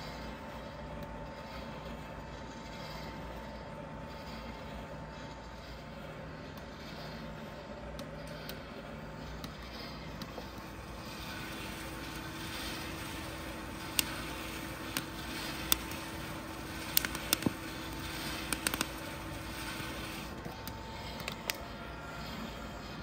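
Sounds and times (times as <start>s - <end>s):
roaster whirring: 0.0s - 23.0s
coffee beans popping: 11.2s - 20.0s.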